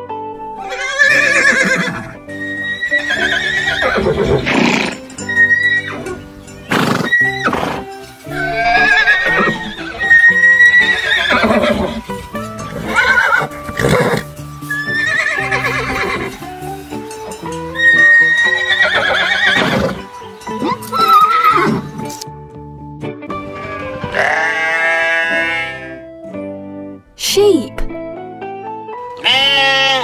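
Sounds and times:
background music: 0:00.0 - 0:30.0
horses whinnying: 0:00.5 - 0:16.5, 0:17.7 - 0:22.2, 0:23.4 - 0:26.0.

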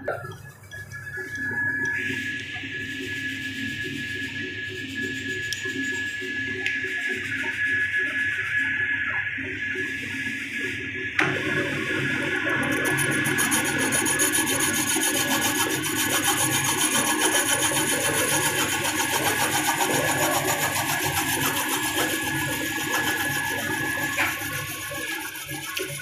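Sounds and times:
steady high machine tone: 0:00.0 - 0:26.0
boring machine scraping metal: 0:11.2 - 0:26.0.

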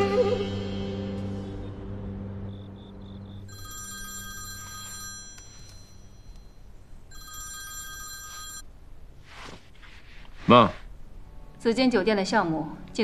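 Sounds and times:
phone ringtone: 0:03.4 - 0:08.7.

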